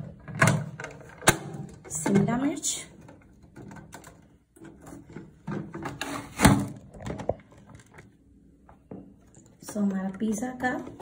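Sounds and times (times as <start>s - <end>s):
plastic dicer handling clatter: 0.0s - 8.1s.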